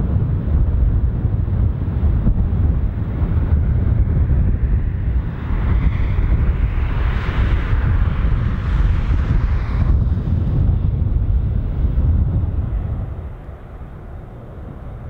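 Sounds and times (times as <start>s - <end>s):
jet engine roar: 0.0s - 15.0s
wind buffeting microphone: 0.0s - 15.0s.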